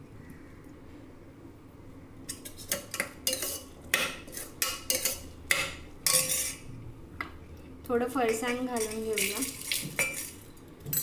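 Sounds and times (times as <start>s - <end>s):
spoon stirring in steel bowl: 2.3s - 6.7s, 8.2s - 11.0s.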